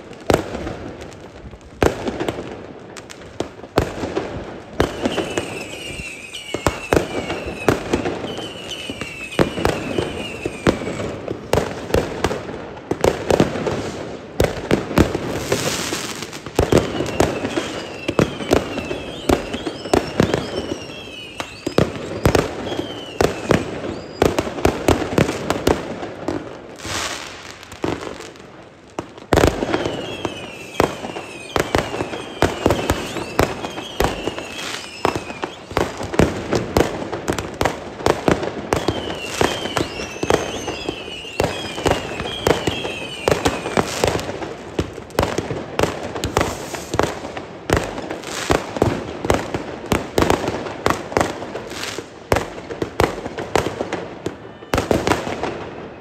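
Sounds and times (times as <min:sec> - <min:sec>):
fireworks bangs and crackles: 0:00.0 - 0:56.0
falling firework whistles: 0:04.8 - 0:12.0, 0:15.0 - 0:25.8, 0:26.8 - 0:28.1, 0:29.3 - 0:49.5, 0:53.5 - 0:56.0
rushing hiss: 0:46.3 - 0:47.0.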